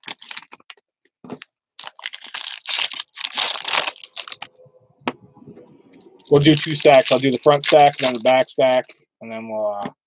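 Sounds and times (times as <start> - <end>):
foil wrappers crinkling and tearing: 0.0 - 0.8, 1.4 - 4.5, 6.2 - 9.0.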